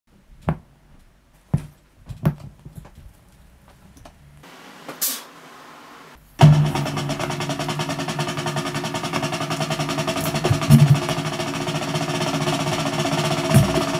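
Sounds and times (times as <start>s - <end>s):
low hiss: 3.0s - 6.4s
drum-led beat: 6.4s - 13.9s.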